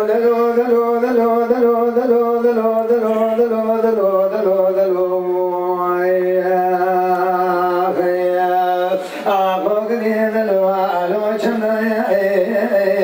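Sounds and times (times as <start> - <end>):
man singing into a microphone: 0.0 - 13.0.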